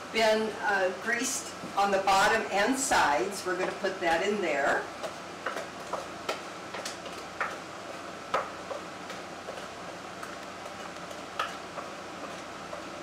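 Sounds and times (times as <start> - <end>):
utensil tapping and scraping bowl: 5.0 - 13.0.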